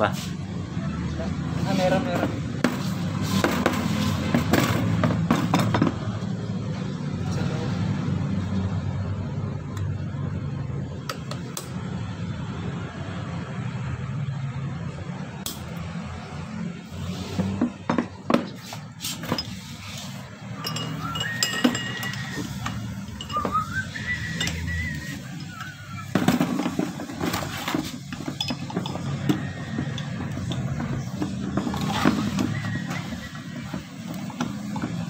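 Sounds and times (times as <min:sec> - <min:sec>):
metal tools clinking: 0:18.5 - 0:35.0.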